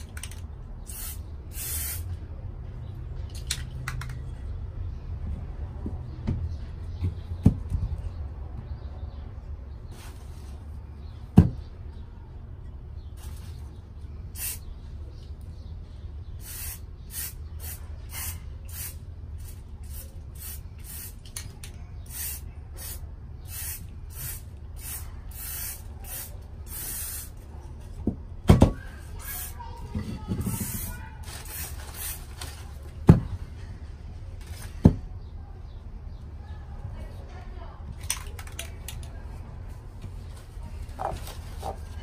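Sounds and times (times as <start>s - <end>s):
aerosol spray can hissing: 0.9s - 2.0s, 16.4s - 21.2s, 22.1s - 27.3s.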